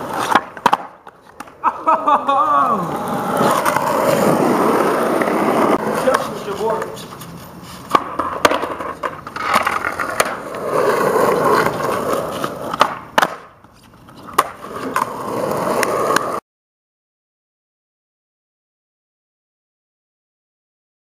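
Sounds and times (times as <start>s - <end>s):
skateboard clacks: 0.0s - 16.4s
skateboard wheels rolling on asphalt: 0.0s - 16.4s.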